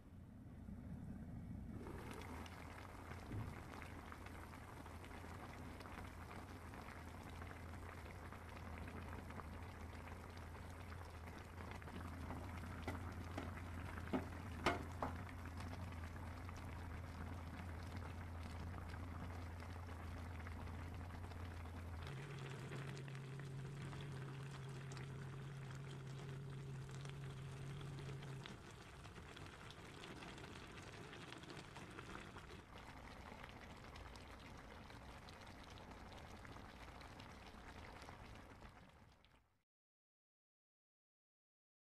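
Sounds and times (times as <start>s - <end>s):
low hum: 0.0s - 29.7s
stew bubbling and crackling: 0.7s - 39.6s.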